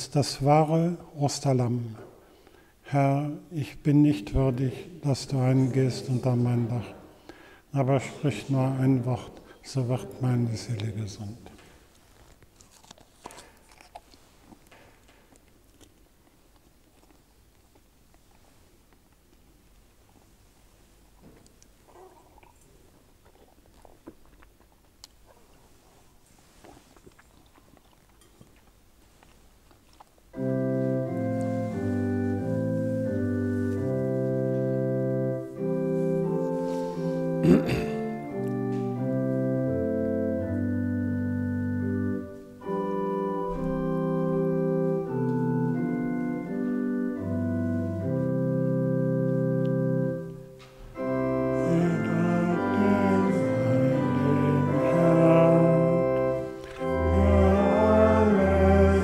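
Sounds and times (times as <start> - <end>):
church organ chords: 2.9 - 7.0, 30.3 - 59.0
voices singing: 51.1 - 59.0.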